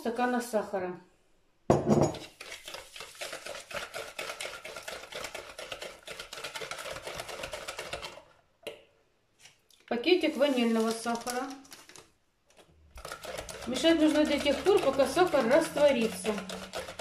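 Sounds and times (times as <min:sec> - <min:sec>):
whisk scraping a plastic bowl: 0:02.2 - 0:08.4, 0:12.6 - 0:17.0.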